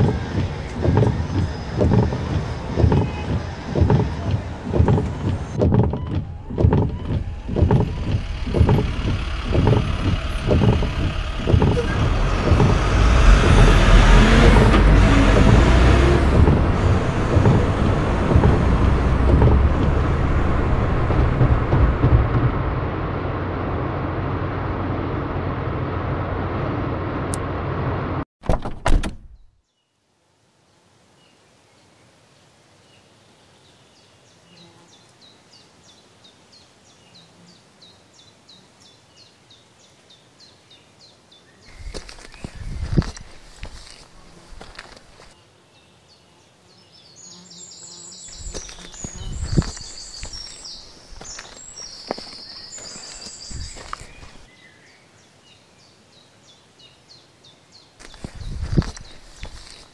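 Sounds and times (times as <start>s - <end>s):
low rhythmic thuds: 0.0s - 23.2s, 41.8s - 45.4s, 48.3s - 52.3s
car road noise: 0.0s - 28.3s, 41.7s - 45.4s, 48.3s - 54.5s, 58.0s - 59.9s.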